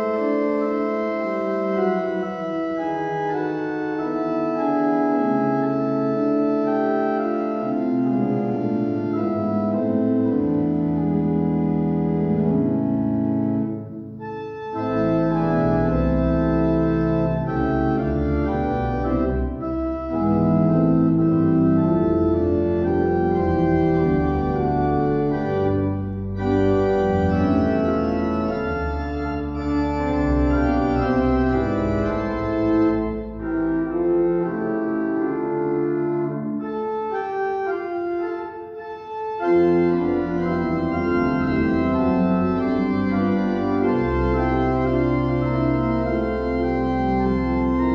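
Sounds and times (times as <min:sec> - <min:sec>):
organ playing full chords: 0:00.0 - 0:47.9
deep pedal bass: 0:14.8 - 0:34.7.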